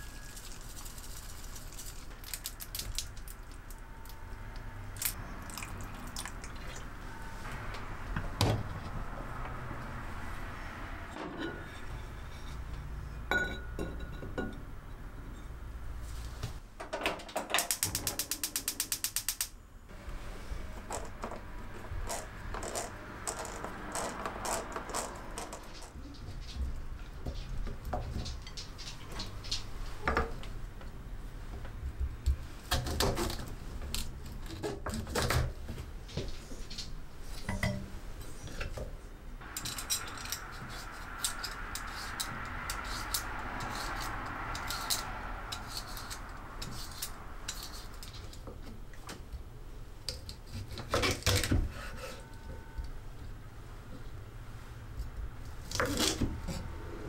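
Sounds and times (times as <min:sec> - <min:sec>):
stove igniter clicking rapidly: 0:17.7 - 0:19.5.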